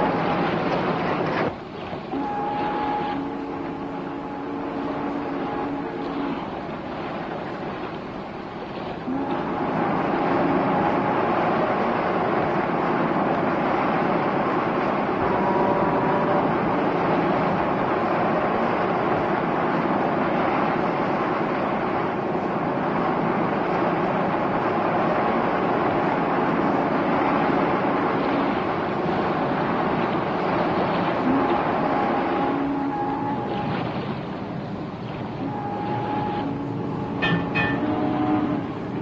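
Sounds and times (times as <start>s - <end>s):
boat engine: 0.0s - 39.0s
rushing water: 0.0s - 39.0s.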